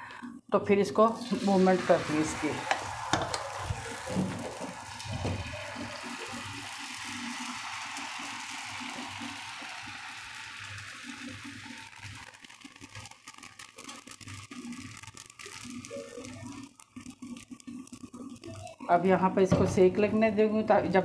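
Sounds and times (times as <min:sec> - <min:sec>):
batter sizzling on hot pan: 0:01.1 - 0:19.9
crackling: 0:06.0 - 0:18.9.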